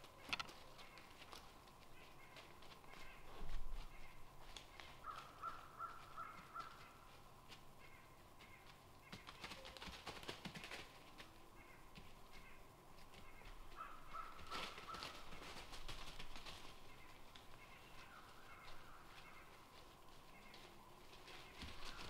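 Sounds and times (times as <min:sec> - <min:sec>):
distant crow cawing: 0:01.9 - 0:07.1, 0:07.8 - 0:09.3, 0:11.5 - 0:15.6, 0:16.9 - 0:19.6.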